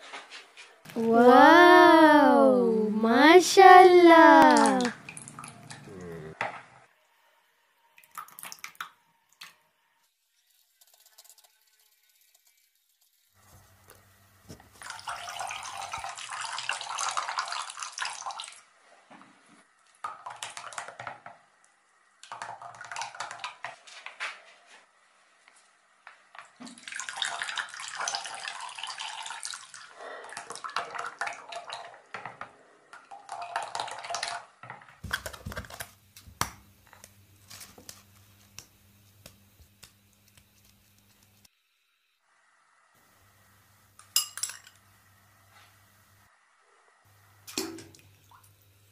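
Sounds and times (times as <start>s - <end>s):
liquid splashing while stirred: 10.3s - 13.4s, 19.8s - 21.4s, 22.2s - 24.2s, 26.4s - 34.5s.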